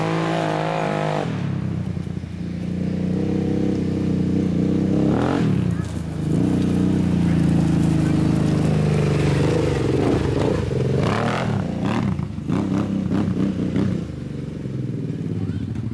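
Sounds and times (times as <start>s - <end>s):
engine revving: 0.0s - 1.8s, 2.6s - 15.9s
tyres spinning spraying gravel: 5.7s - 11.8s.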